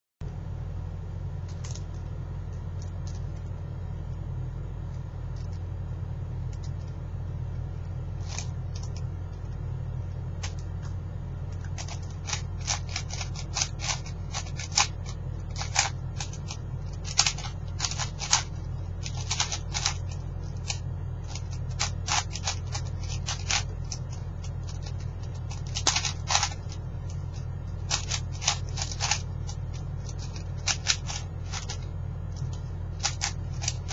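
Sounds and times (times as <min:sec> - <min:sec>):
steady low hum: 0:00.2 - 0:33.9
puzzle cube plastic clicks: 0:01.5 - 0:02.1, 0:08.2 - 0:09.1, 0:11.6 - 0:33.9.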